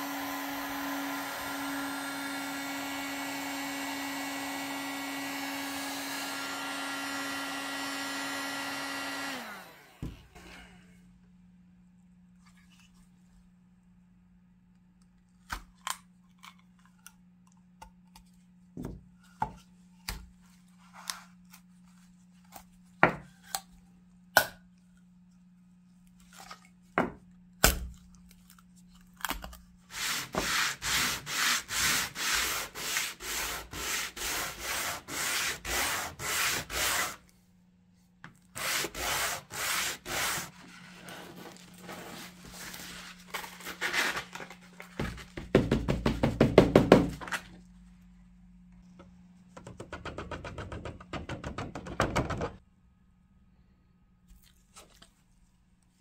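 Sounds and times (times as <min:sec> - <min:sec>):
wood sanding on sandpaper: 0:29.9 - 0:37.2, 0:38.6 - 0:44.0.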